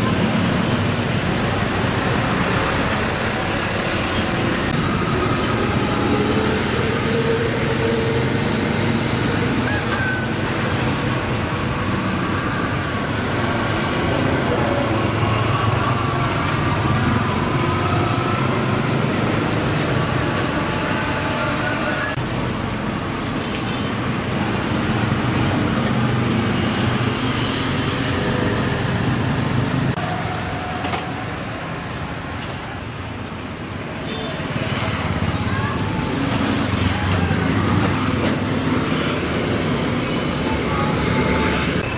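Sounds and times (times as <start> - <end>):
street traffic: 0.0 - 41.9
faint voices: 34.2 - 41.9.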